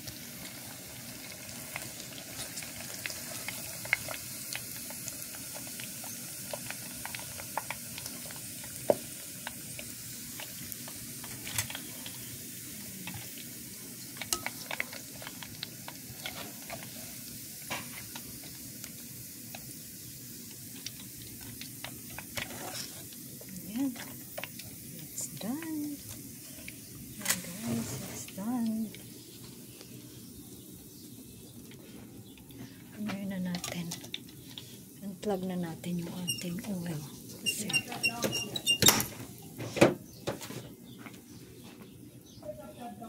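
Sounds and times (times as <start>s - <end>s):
skimmer stirring through oil: 0.0s - 29.8s
oil popping and crackling: 0.0s - 30.0s, 31.4s - 39.7s
meat deep-frying in hot oil: 0.0s - 40.7s.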